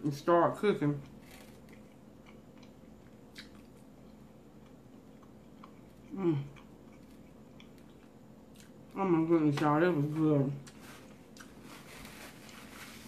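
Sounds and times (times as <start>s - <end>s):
person chewing food: 1.0s - 9.1s, 10.6s - 13.0s
person humming: 6.1s - 6.6s.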